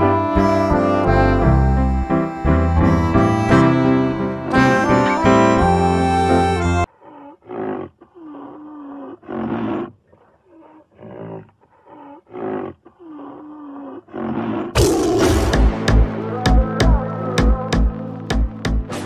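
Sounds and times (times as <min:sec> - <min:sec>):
background music: 0:00.0 - 0:06.9, 0:14.8 - 0:19.0.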